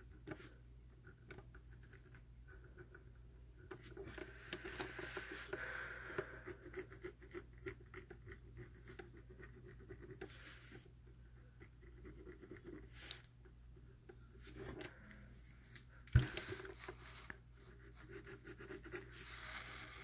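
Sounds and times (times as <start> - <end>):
faint low hum: 0.0 - 20.0
pen scratching on paper: 3.7 - 5.6, 6.2 - 13.3, 16.2 - 20.0.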